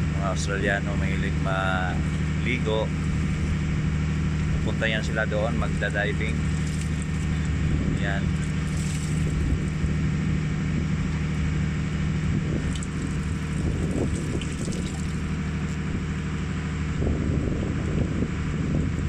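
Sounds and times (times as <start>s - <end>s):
low engine drone: 0.0s - 19.0s.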